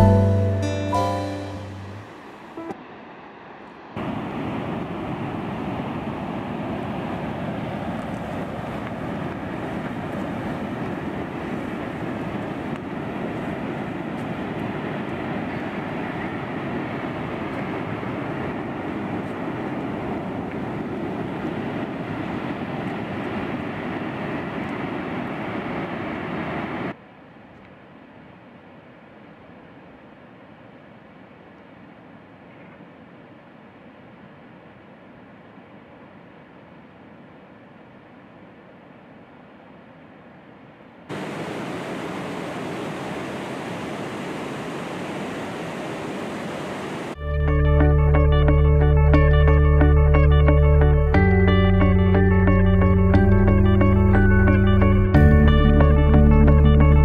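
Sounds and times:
steady rushing noise: 1.5 - 27.0, 41.0 - 51.1.

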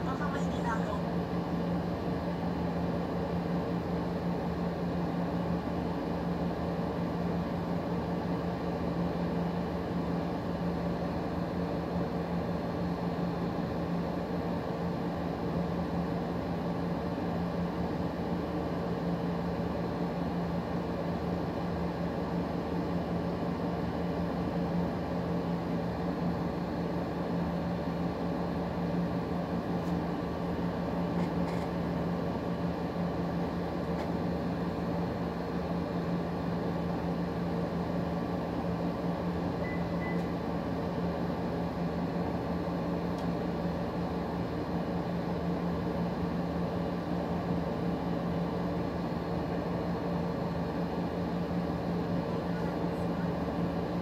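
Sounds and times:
steady mechanical hum: 0.0 - 54.0
faint beep: 39.6 - 40.3.

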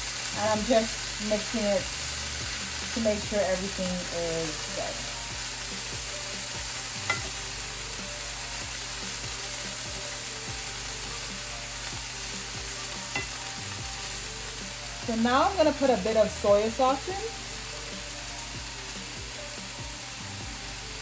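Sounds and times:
vegetables sizzling in a frying pan: 0.0 - 21.0
spatula knocking on pan: 7.1 - 7.4, 13.1 - 13.4.

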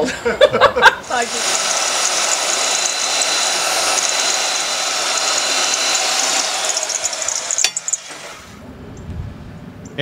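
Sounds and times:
power tool motor whirring: 1.0 - 8.6.

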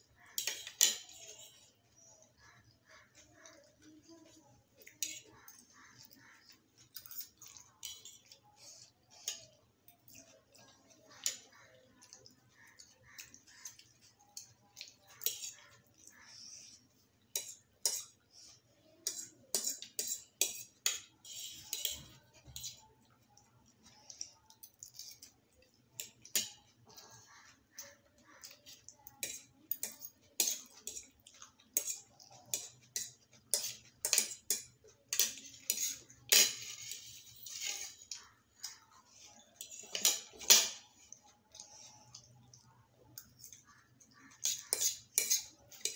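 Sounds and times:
forks scraping on paper plates: 19.0 - 22.8, 35.1 - 42.1.

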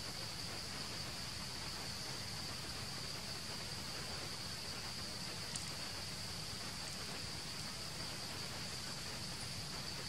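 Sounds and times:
background hiss: 0.0 - 10.0
faint click: 5.5 - 5.8.

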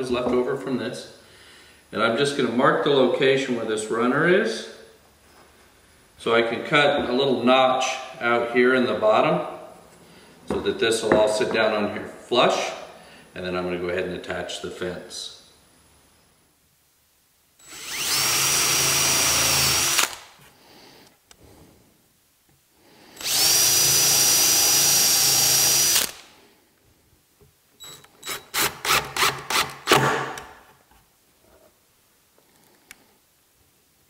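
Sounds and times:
cordless drill whining: 17.6 - 20.2, 23.2 - 26.3
short drill trigger pulses: 17.6 - 20.2, 23.2 - 26.3.

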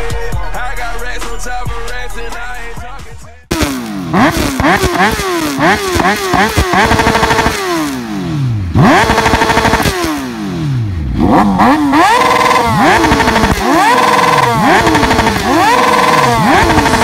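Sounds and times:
motorcycle engine revving: 3.5 - 17.0.

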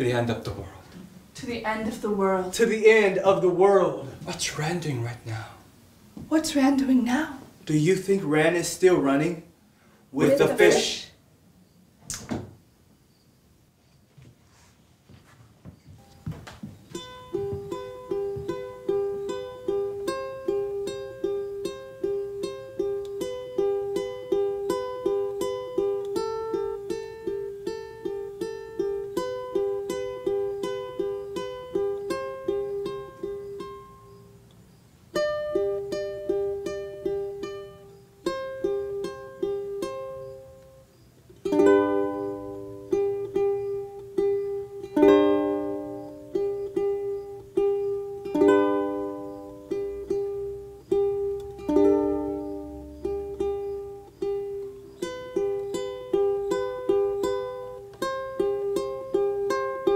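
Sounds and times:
plucked string instrument music: 16.8 - 59.9.

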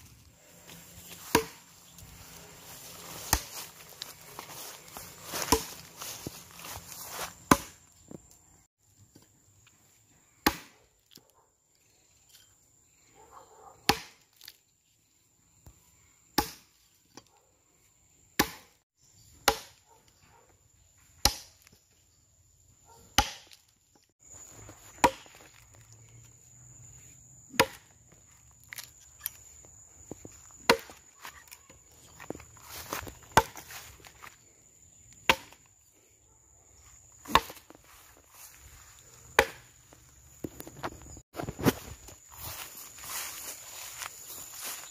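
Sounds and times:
axe chopping wooden log: 1.2 - 1.7, 5.3 - 5.8, 7.4 - 7.8, 10.4 - 10.8, 13.9 - 14.6, 16.4 - 16.7, 18.4 - 18.8, 19.4 - 19.8, 21.2 - 21.8, 23.1 - 23.7, 24.9 - 25.7, 27.5 - 28.0, 30.6 - 31.1, 32.9 - 33.8, 35.2 - 35.7, 37.2 - 37.7, 39.3 - 39.7.

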